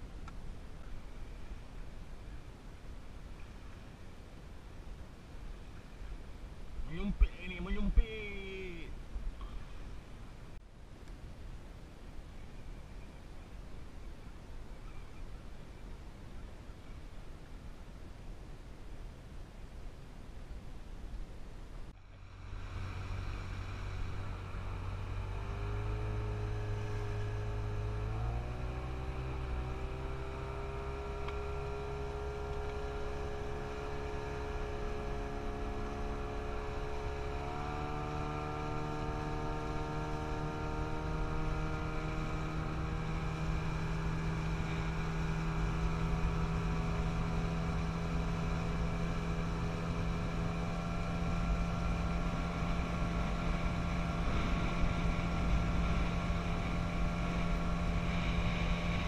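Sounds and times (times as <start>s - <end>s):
outboard motor running: 22.0s - 59.0s.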